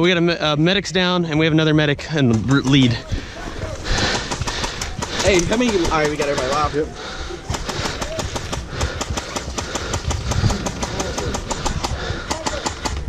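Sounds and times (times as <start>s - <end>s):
airsoft guns firing: 3.7s - 13.0s.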